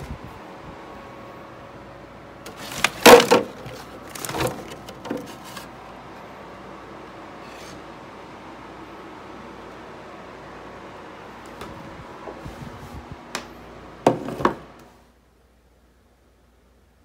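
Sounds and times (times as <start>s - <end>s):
faint room hum: 0.0s - 17.0s
packing paper rustling: 2.5s - 5.7s.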